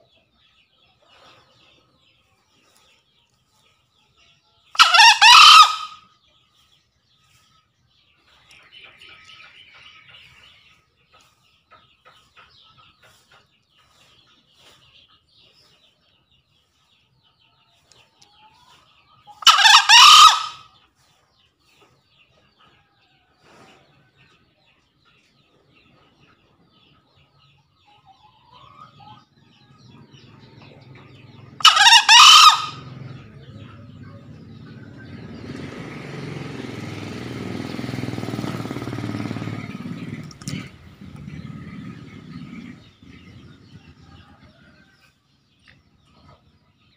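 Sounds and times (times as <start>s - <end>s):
junglefowl crowing: 4.7s - 6.1s, 19.4s - 20.7s, 31.6s - 34.0s
low rumble: 39.1s - 44.4s.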